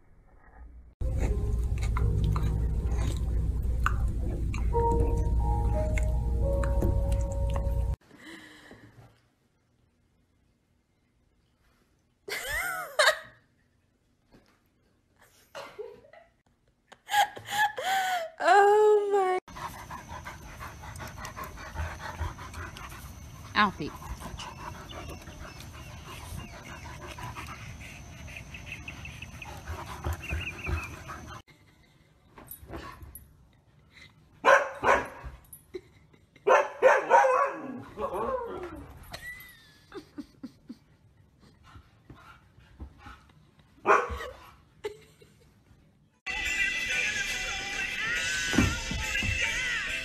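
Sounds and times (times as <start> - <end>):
music: 1.0 - 8.0, 46.3 - 50.0
dog panting: 19.5 - 31.5, 41.4 - 44.7
dog barking: 34.4 - 35.2, 36.5 - 38.5, 43.8 - 44.3.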